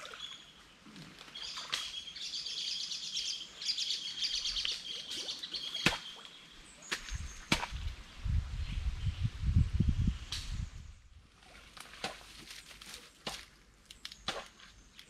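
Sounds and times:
sharp knocks in brush: 6.9 - 7.8.

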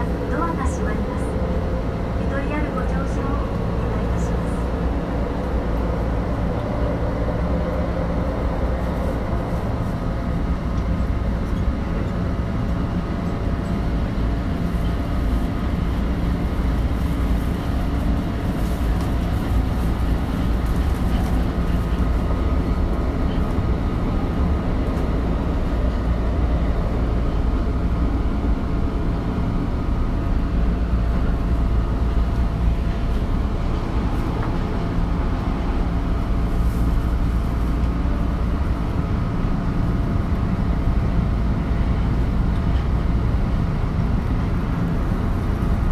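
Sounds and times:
subway train hum and rumble: 0.0 - 45.9.

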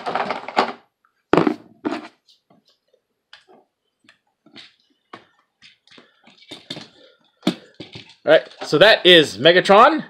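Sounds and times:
plastic toy parts clattering: 0.0 - 0.9, 6.2 - 8.9.

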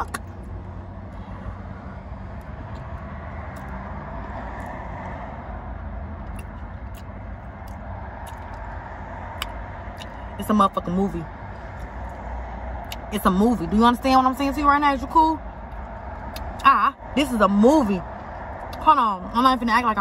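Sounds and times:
car interior rumble: 0.0 - 20.0
faint chewing clicks: 6.2 - 8.6.

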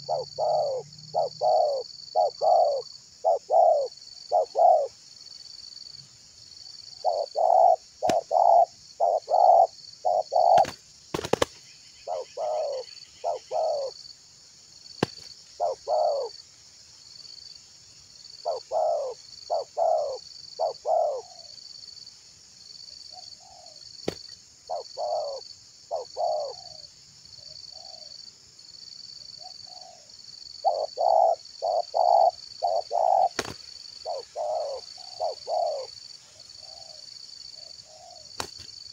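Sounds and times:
doves cooing: 0.0 - 5.0, 7.0 - 14.0, 15.0 - 16.4, 18.4 - 21.5, 24.7 - 26.8, 29.7 - 36.0.

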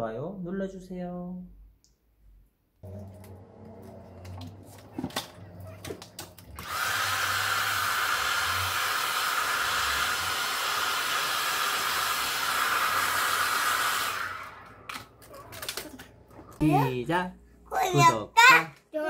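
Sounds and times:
hair dryer running: 6.6 - 15.1.

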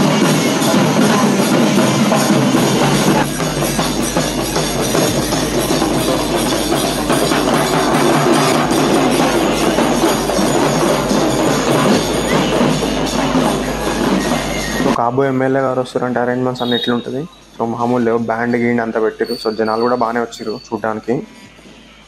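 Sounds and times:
loud drum-led music: 0.0 - 15.0.

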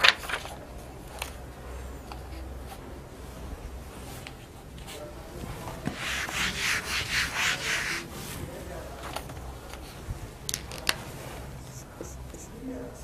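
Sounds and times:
eraser rubbing on whiteboard: 5.9 - 8.1.

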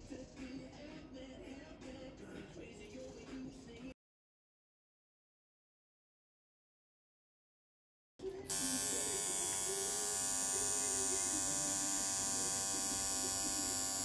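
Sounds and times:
tattoo machine buzzing: 8.5 - 14.0.

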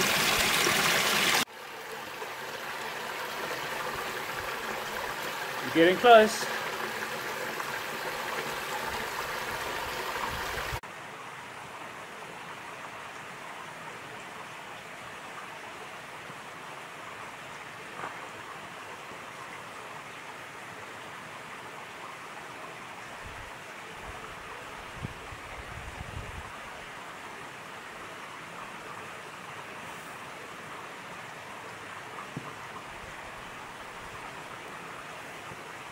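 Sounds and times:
waterfall splashing into pool: 0.0 - 10.8
faint steady hiss: 1.4 - 35.9.

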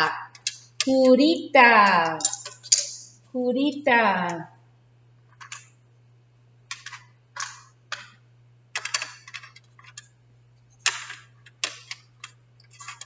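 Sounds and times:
wooden sticks clicking: 0.0 - 1.2, 1.8 - 3.2.

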